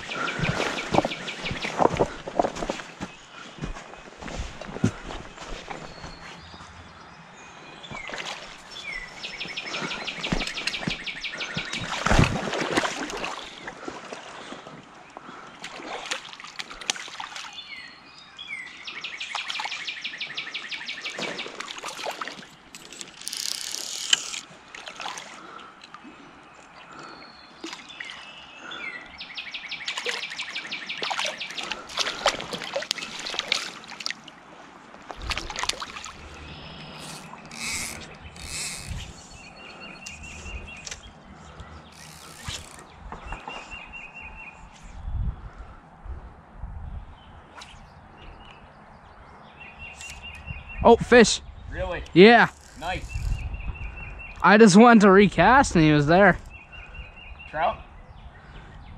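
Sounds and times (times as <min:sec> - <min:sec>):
water splashes and knocks: 0:11.6 - 0:14.3, 0:31.0 - 0:34.3, 0:35.0 - 0:36.2
songbird trilled song: 0:36.2 - 0:45.3, 0:46.9 - 0:55.1, 0:55.7 - 0:58.9.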